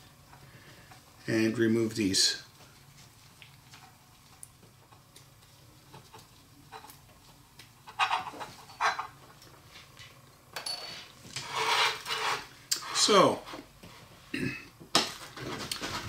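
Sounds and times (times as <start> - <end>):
rustling scrapes: 10.9 - 14.2.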